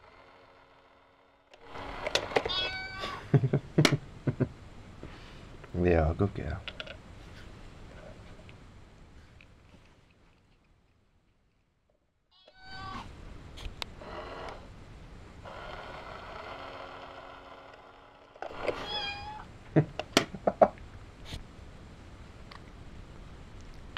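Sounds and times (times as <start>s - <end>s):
small motor whirring: 0.0s - 2.6s, 14.0s - 14.7s, 15.4s - 19.1s
recorded cat meow: 2.5s - 3.2s, 12.4s - 13.1s, 18.7s - 19.5s
sharp clicks and knocks: 6.6s - 7.0s, 19.9s - 20.4s.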